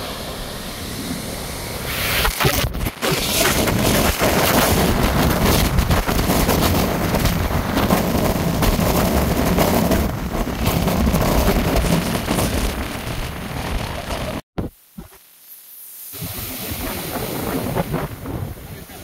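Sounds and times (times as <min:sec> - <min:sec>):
jet engine blast: 0:00.0 - 0:14.4
wind buffeting microphone: 0:00.0 - 0:14.4, 0:16.2 - 0:19.0.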